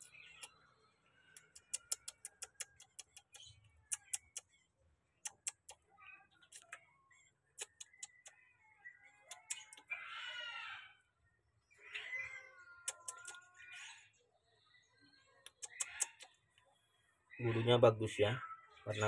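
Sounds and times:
sharp clicks and taps: 0:01.4 - 0:04.5, 0:05.2 - 0:05.8
parrot harsh screech: 0:09.9 - 0:11.0.

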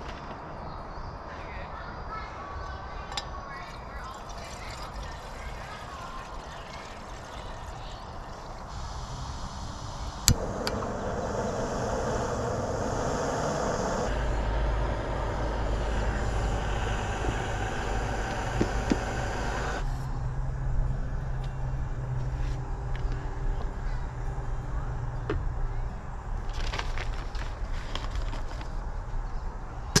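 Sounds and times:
burner hissing: 0:07.2 - 0:20.0
deep rumble: 0:08.7 - 0:21.1
camp stove ignition click: 0:10.2 - 0:11.4.

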